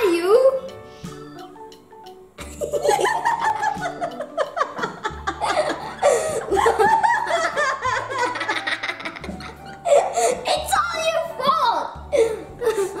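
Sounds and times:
young boy giggling: 2.4s - 10.6s, 12.1s - 13.0s.

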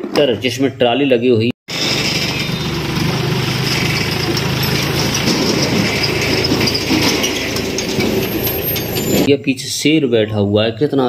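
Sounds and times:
tractor diesel engine running: 1.7s - 9.3s.

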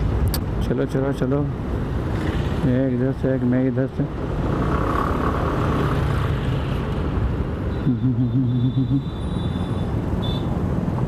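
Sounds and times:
scooter road noise in helmet: 4.1s - 11.0s.

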